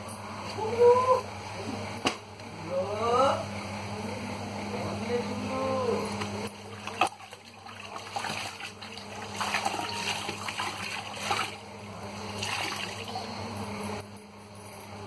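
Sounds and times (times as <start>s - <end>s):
water splashing in a bucket: 6.6s - 11.7s, 12.3s - 13.3s.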